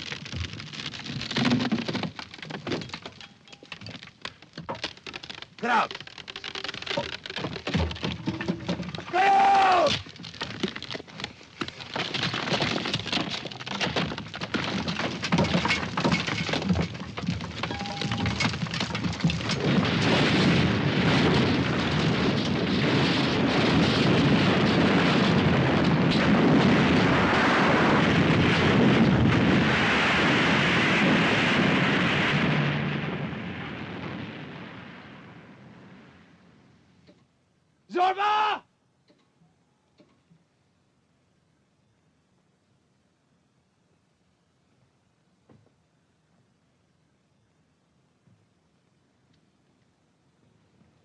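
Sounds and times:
timber props cracking: 0.0s - 27.4s
rush of collapsing rock: 0.0s - 36.6s
falling earth and stones: 0.0s - 38.5s.

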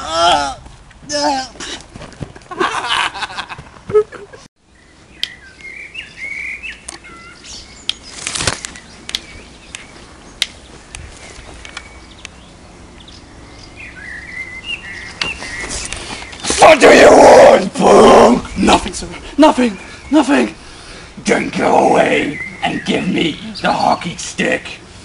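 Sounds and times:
rustling and flapping: 0.6s - 4.4s, 8.0s - 10.0s, 15.2s - 16.7s
birds chirping faintly: 4.3s - 25.0s.

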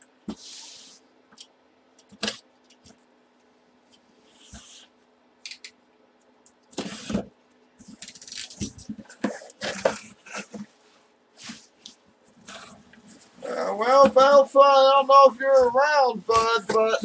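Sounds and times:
bubble wrap crinkling: 7.9s - 10.5s.

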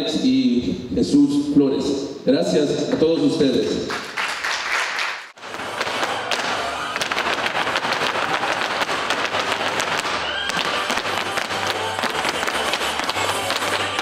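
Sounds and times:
music: 5.4s - 14.0s.

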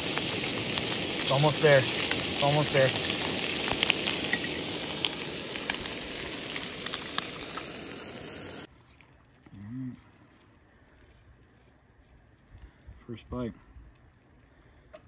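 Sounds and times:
fish sizzling in a frying pan: 0.0s - 8.7s.

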